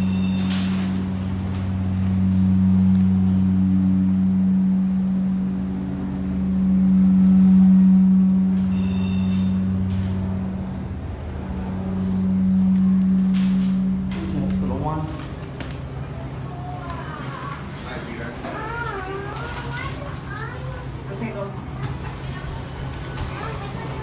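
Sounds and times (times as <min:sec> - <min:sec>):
elevator humming: 0:00.0 - 0:24.0
high electronic chime: 0:08.6 - 0:09.8.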